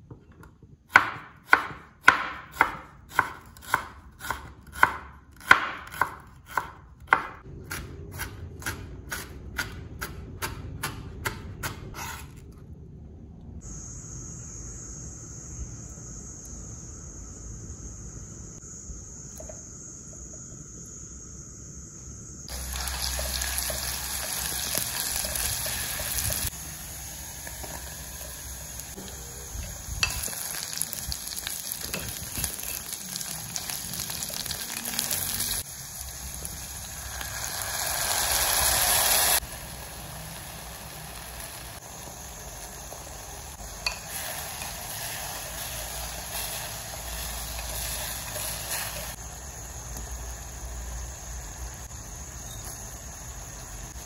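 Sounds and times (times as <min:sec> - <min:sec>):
food sizzling in oil: 0:22.5 - 0:54.0.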